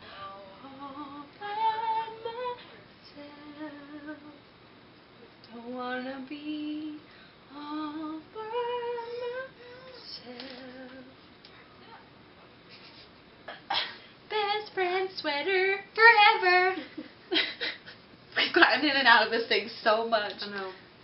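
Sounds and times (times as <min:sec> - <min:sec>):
woman singing slow melody: 0:00.0 - 0:04.5, 0:05.4 - 0:11.2, 0:13.7 - 0:17.1.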